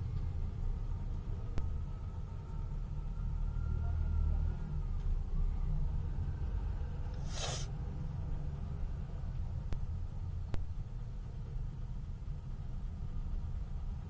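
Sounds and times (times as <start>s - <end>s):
vehicle engine idling: 4.9s - 14.0s
short sharp hiss: 7.2s - 7.7s.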